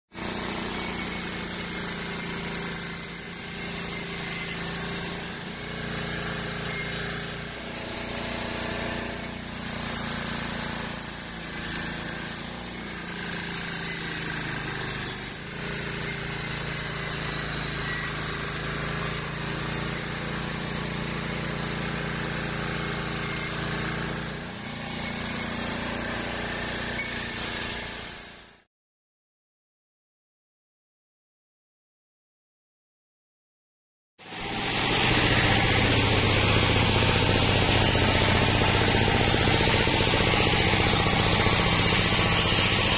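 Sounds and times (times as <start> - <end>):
saw blade rasping through log: 0.2 - 28.7, 34.3 - 42.9
band sawmill humming: 34.4 - 42.9.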